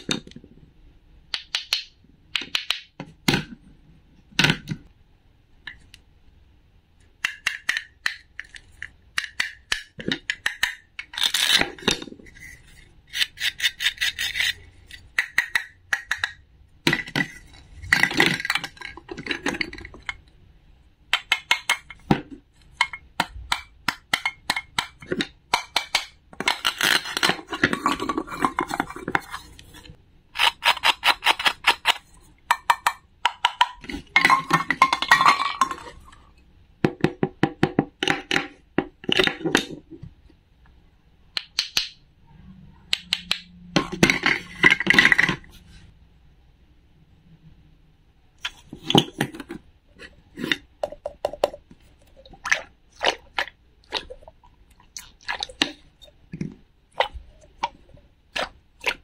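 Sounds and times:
wooden pieces clicking on board: 1.3 - 2.9, 41.4 - 42.0, 42.9 - 45.2.

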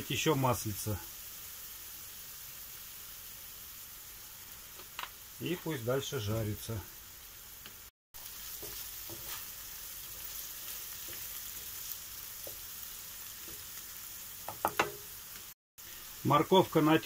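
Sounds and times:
vegetables sizzling in oil: 0.0 - 17.0
wooden spatula scraping pan: 8.5 - 10.4.

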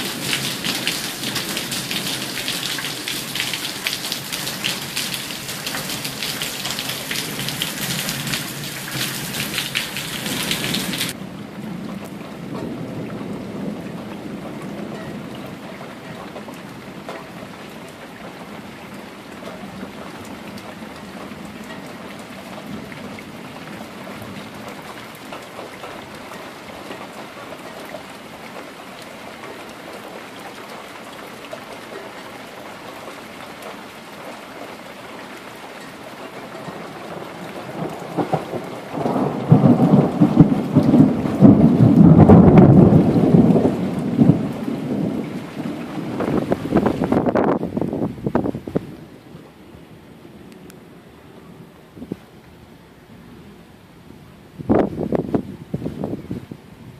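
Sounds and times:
thunder rumbling: 0.0 - 17.1, 36.6 - 49.2
steady rain: 0.0 - 56.9.

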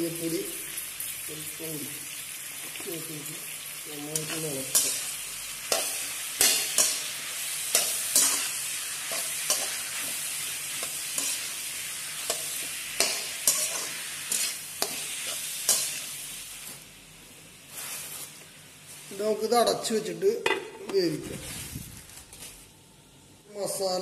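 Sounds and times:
vegetables sizzling in oil: 0.0 - 19.4
metal spatula scraping pan: 7.7 - 10.1, 12.2 - 16.1.

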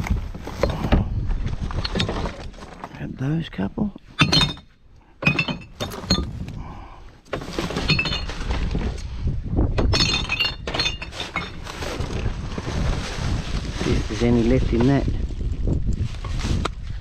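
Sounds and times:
glass bottles clinking: 4.2 - 6.4, 7.7 - 8.6, 9.8 - 11.7.

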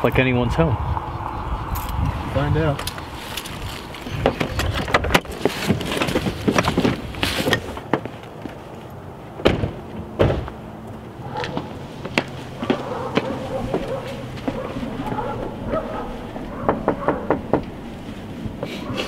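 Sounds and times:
car doors slamming: 9.4 - 10.6.

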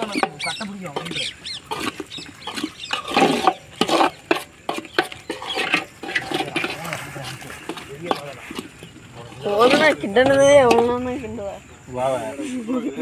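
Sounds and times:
high chirping calls: 0.0 - 6.0.

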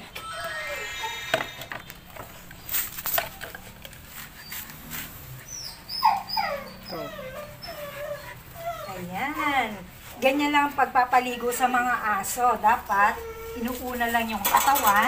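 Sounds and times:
dog whimpering: 4.4 - 9.7, 12.7 - 15.0.

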